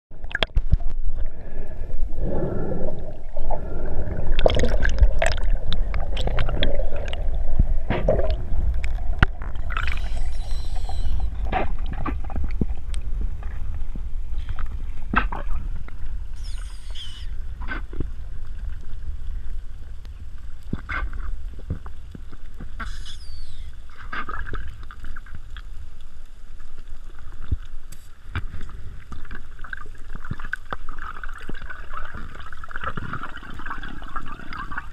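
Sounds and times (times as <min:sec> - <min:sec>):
underwater rumble of moving water: 0:00.1 - 0:34.9
high squeaks: 0:09.8 - 0:11.4, 0:16.4 - 0:17.3, 0:22.8 - 0:23.8.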